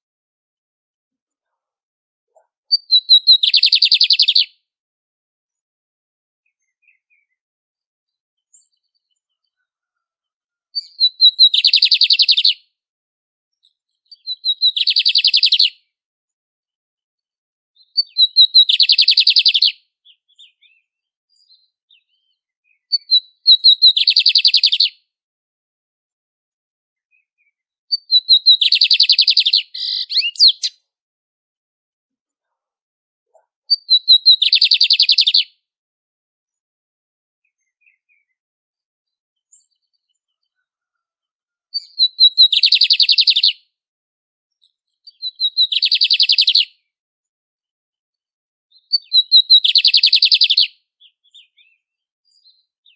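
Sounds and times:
bird singing with rattling trill: 2.7s - 4.5s, 10.8s - 12.6s, 13.6s - 15.7s, 17.8s - 24.9s, 27.2s - 30.8s, 33.7s - 35.5s, 41.8s - 43.6s, 44.6s - 46.7s, 48.7s - 52.9s.

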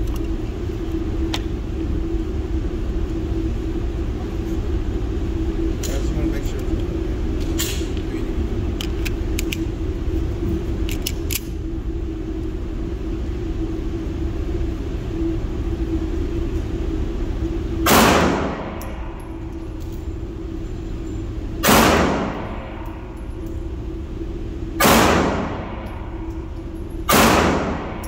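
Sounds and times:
steady low hum: 0.0s - 28.0s
echoing gunshots: 17.9s - 18.8s, 21.6s - 22.8s, 24.8s - 25.8s, 27.1s - 28.0s.

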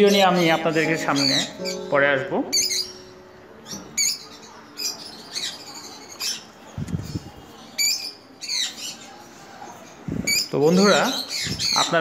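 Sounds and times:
birds squawking: 0.0s - 12.0s.

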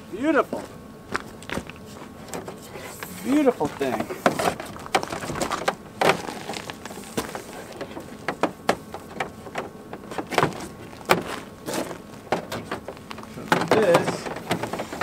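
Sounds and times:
cable rubbing and scraping: 1.7s - 8.1s.

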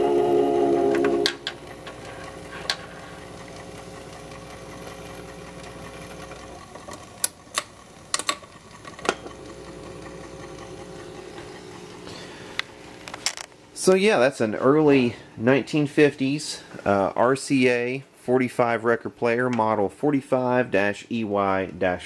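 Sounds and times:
record changer motor hum: 0.0s - 15.1s
changer mechanism clicks and knocks: 5.6s - 11.4s, 12.6s - 13.6s.

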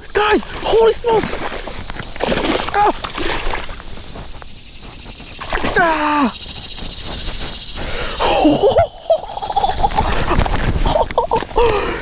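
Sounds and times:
rustling and bumping in grass: 0.8s - 11.9s
man yelping and shrieking: 5.7s - 6.4s.

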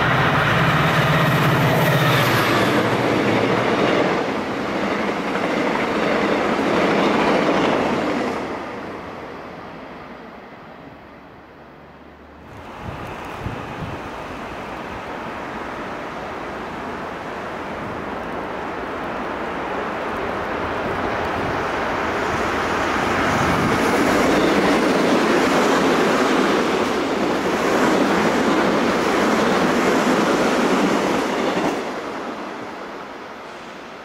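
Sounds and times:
wheels clickety-clack on rails: 0.0s - 8.8s, 17.7s - 32.4s
train passing at speed: 0.0s - 34.0s.

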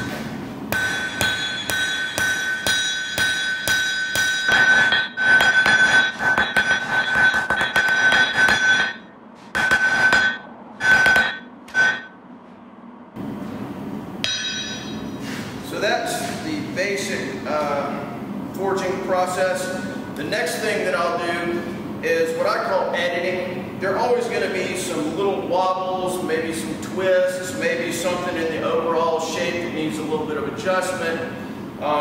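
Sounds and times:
hammer striking blade on anvil: 0.7s - 12.2s, 14.2s - 15.2s.

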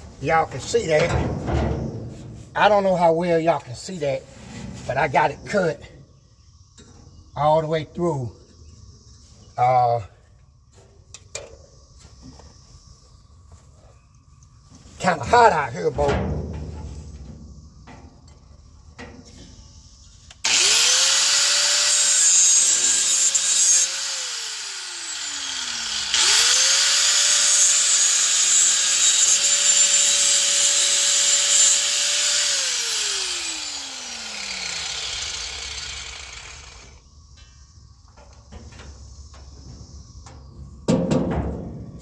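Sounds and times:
power tool motor whine: 20.4s - 37.0s.

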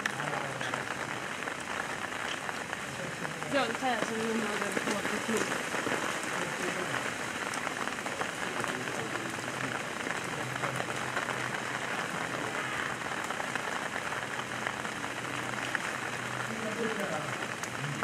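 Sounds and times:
steady rain falling: 0.0s - 18.0s.

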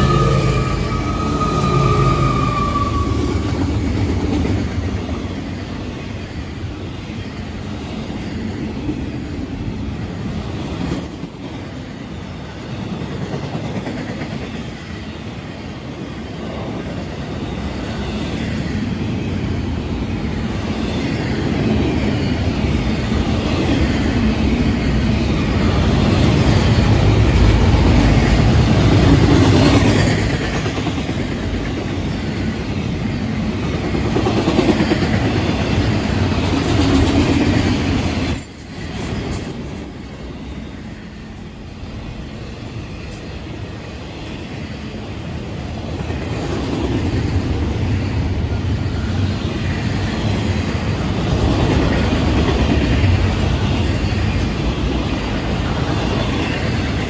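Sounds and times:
train horn: 0.0s - 3.6s
train wheels clacking on rails: 0.0s - 6.8s, 7.5s - 40.4s, 42.6s - 57.0s
diesel locomotive rumbling: 0.0s - 10.8s, 15.3s - 57.0s.

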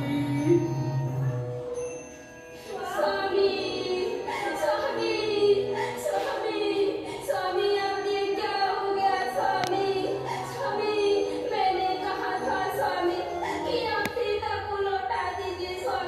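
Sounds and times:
high voice singing: 0.0s - 1.5s
musical accompaniment: 0.0s - 15.9s.

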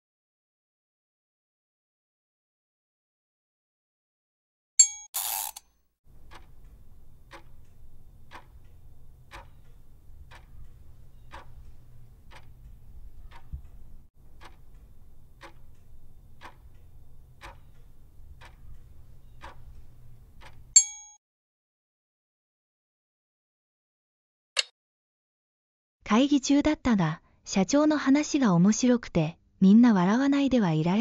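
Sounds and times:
clock-like ticks: 5.4s - 20.8s.

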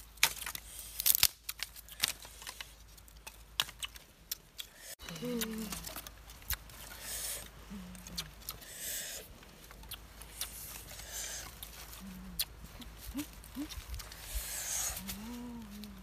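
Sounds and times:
dry leaves rustling: 9.3s - 16.0s
short low calls: 11.1s - 16.0s.

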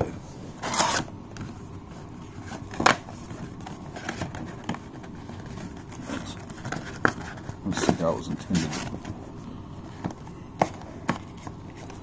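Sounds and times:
cardboard box scraping rustle: 0.6s - 1.1s.

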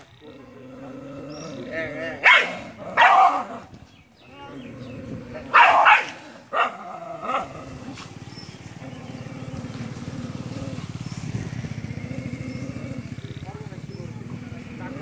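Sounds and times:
low steady rumble: 0.1s - 15.0s
dogs barking: 1.6s - 3.7s, 5.4s - 10.9s.

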